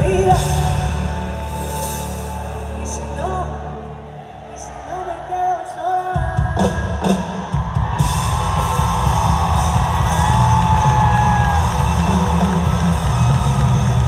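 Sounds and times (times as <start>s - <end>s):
drums: 0.0s - 3.5s, 6.0s - 14.0s
bass: 0.0s - 5.6s, 6.2s - 14.0s
live pop-rock band: 0.0s - 14.0s
electric guitar: 8.0s - 14.0s.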